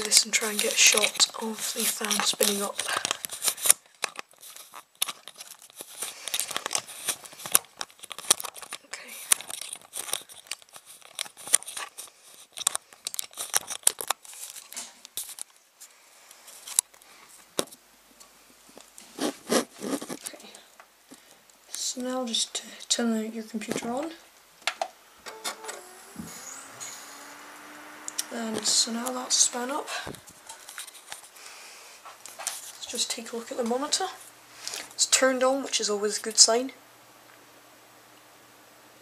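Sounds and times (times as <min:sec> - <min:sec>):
camera handling rustling: 0:01.9 - 0:15.6, 0:30.1 - 0:32.8.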